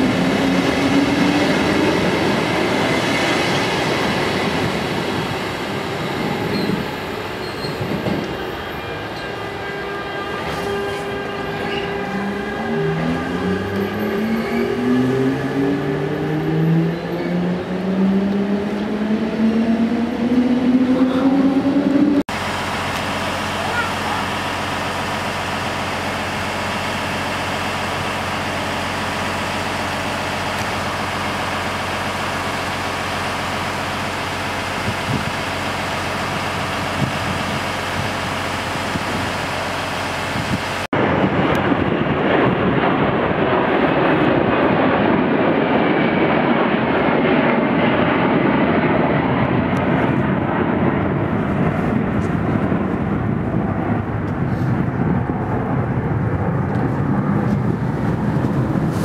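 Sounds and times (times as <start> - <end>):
electric train hum: 0.0 - 59.0
aircraft passing overhead: 39.9 - 59.0.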